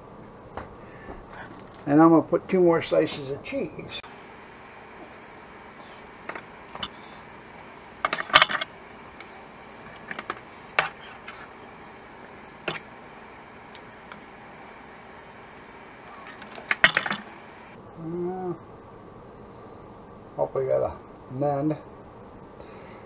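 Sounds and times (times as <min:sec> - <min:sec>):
faint steady hiss: 0:00.0 - 0:23.0
spatulas clattering on a griddle: 0:08.0 - 0:08.7, 0:09.9 - 0:11.5, 0:16.2 - 0:17.3.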